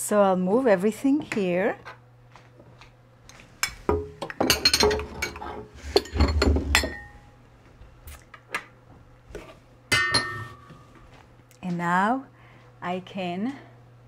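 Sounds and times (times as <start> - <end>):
glass bowls clinking: 3.9 - 7.2, 9.9 - 10.7.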